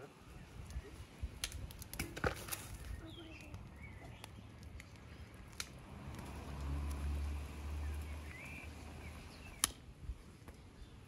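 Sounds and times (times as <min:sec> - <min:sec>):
small birds chirping: 0:00.0 - 0:01.4, 0:02.6 - 0:11.0
sharp clicks: 0:09.6 - 0:09.8.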